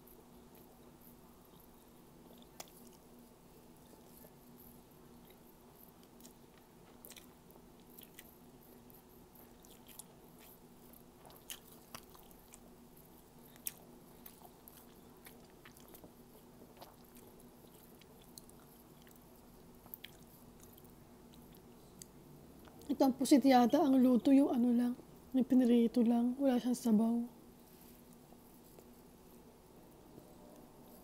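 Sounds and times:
chewing and eating sounds: 0.0 - 23.0
steady low hum: 0.0 - 31.0.

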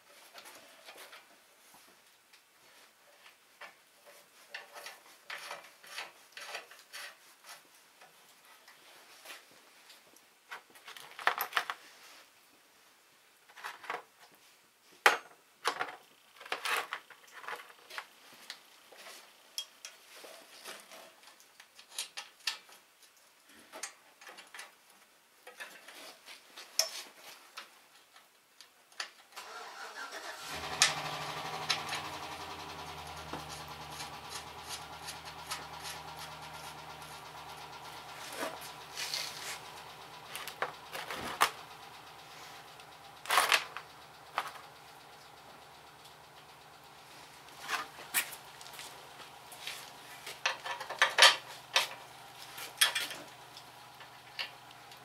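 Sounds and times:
steady low hum: 30.8 - 55.0
metal tools clinking: 47.6 - 54.7.

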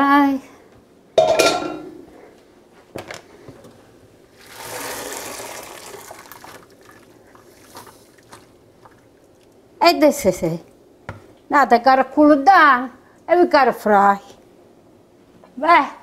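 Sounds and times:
pot clanking: 1.2 - 2.0
water draining: 4.3 - 9.6.

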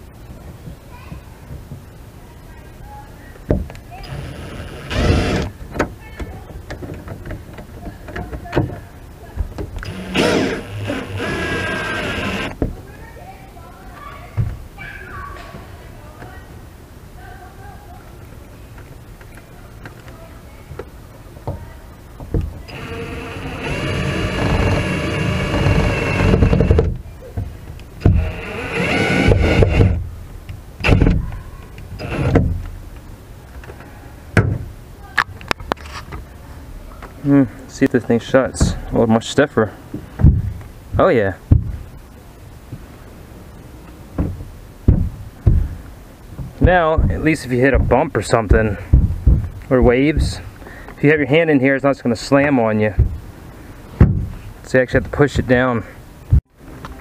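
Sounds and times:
drill motor whining: 4.0 - 5.5, 9.8 - 12.6, 22.7 - 26.8, 28.0 - 30.0, 32.0 - 32.4.

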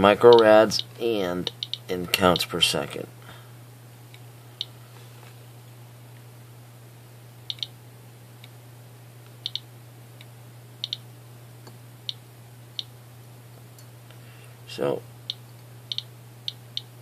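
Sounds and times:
geiger counter clicking: 0.3 - 1.9, 7.5 - 7.7, 9.4 - 9.6, 10.8 - 11.0, 15.3 - 16.9.

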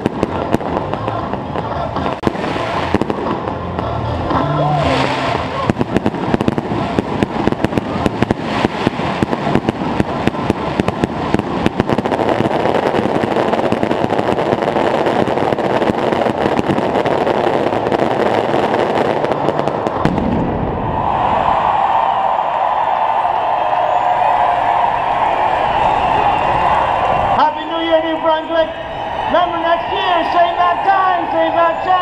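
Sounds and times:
fireworks bangs and crackle: 0.0 - 32.0.

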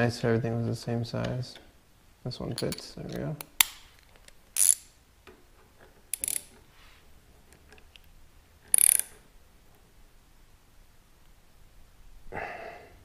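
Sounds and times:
ratchet wrench clicking: 4.6 - 4.9, 6.1 - 6.5, 8.7 - 9.2.

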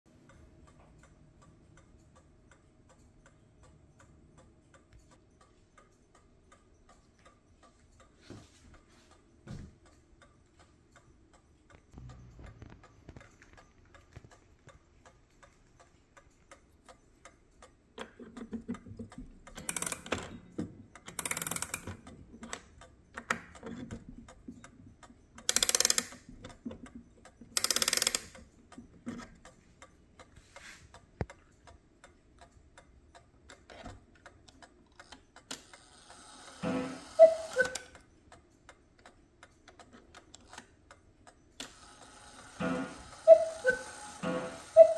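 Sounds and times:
clock ticking: 0.1 - 44.9
clock key winding clicks: 18.0 - 20.4, 21.0 - 24.4, 25.4 - 29.6, 37.1 - 38.1.

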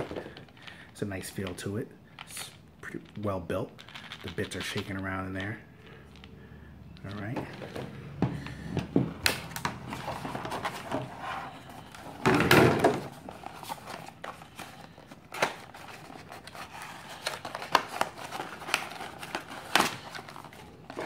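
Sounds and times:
plastic packaging crinkling: 2.2 - 5.6, 12.9 - 21.0
packaging rustle: 9.3 - 21.0.

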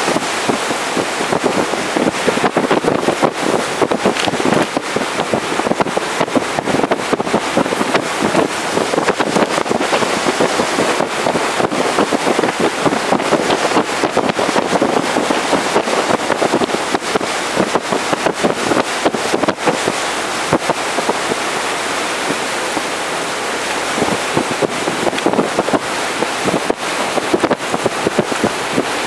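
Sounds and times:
water rushing along boat hull: 0.0 - 29.0
wind buffeting microphone: 0.0 - 29.0.

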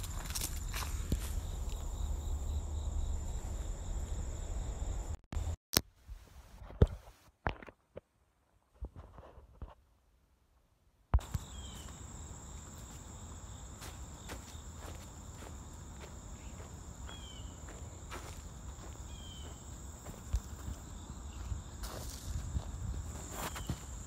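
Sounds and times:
footsteps on dirt and leaves: 0.0 - 2.0, 13.7 - 24.0
high insect trill: 0.0 - 5.1, 11.2 - 24.0.

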